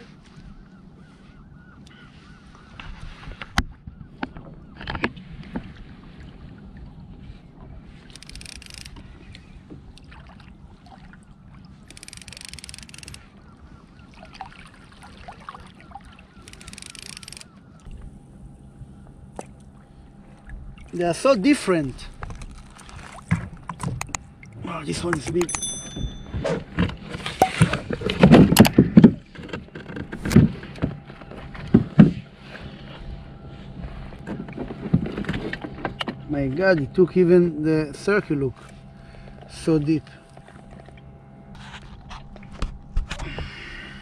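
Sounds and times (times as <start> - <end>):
low rumble of wind and water: 0.0 - 44.0
fishing reel clicking: 8.1 - 9.0, 11.9 - 13.3, 16.4 - 17.6.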